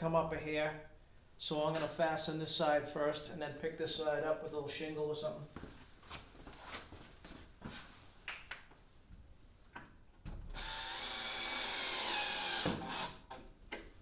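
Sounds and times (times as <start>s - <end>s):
cordless drill driving a screw: 10.6s - 13.4s.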